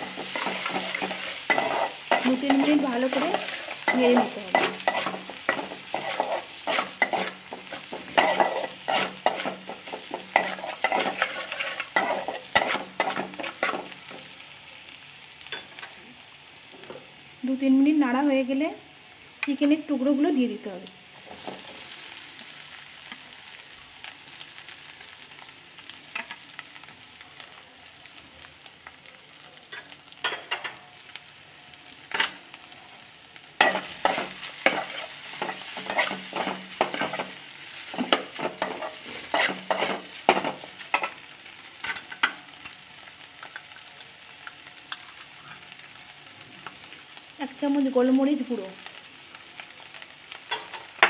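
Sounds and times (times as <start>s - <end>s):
metal spatula scraping pan: 0.0s - 14.0s, 33.6s - 37.4s, 38.0s - 41.2s
chicken sizzling in oil: 0.0s - 51.0s.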